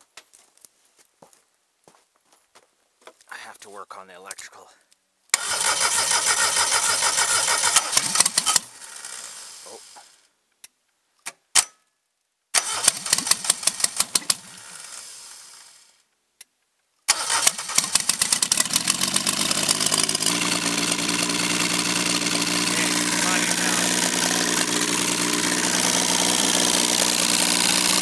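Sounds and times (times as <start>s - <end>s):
engine firing and stalling: 5.4s - 10.1s, 12.6s - 15.8s, 17.1s - 28.0s
engine idling: 5.4s - 10.2s, 12.7s - 15.8s, 17.1s - 28.0s.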